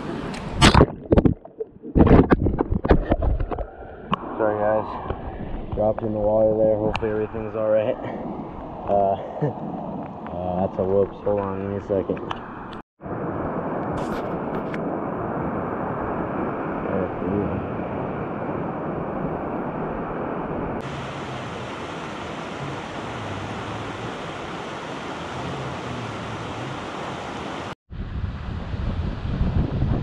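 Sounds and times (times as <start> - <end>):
river rushing over rocks: 20.9 - 27.8.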